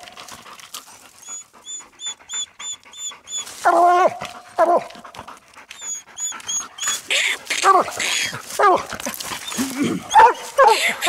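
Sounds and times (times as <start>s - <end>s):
dogs barking: 9.5s - 11.0s.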